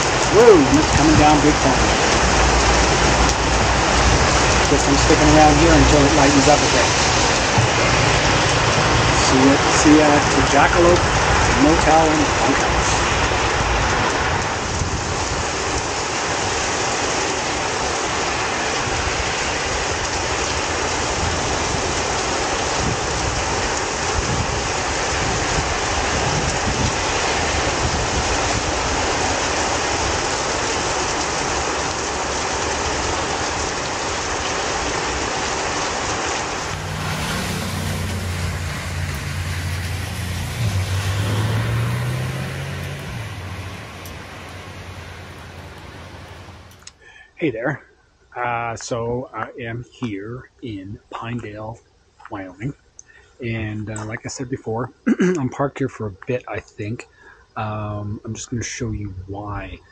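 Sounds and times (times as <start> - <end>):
car driving on wet street: 0.0 - 47.0
heavy rain pouring: 0.0 - 47.8.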